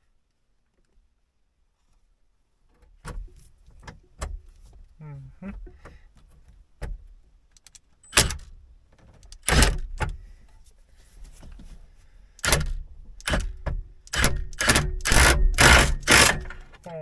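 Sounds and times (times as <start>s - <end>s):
cordless drill driving fasteners: 12.4s - 16.8s.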